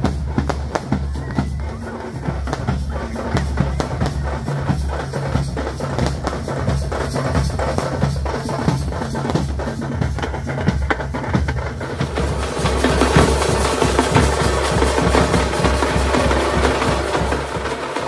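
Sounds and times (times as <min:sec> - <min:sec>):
large drums beating fast: 0:00.0 - 0:18.0.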